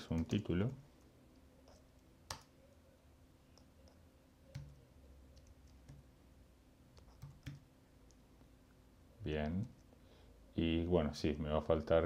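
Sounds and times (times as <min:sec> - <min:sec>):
low room hum: 0:00.0 - 0:12.0
computer keys and mouse clicks: 0:00.1 - 0:02.6, 0:03.5 - 0:06.1, 0:06.9 - 0:08.2.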